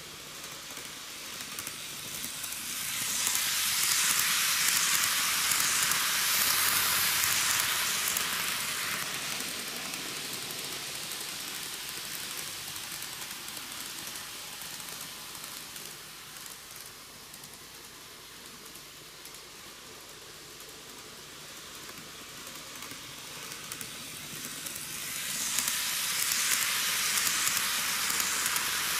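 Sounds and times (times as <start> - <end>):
model train wheels and motor: 0.0 - 28.9.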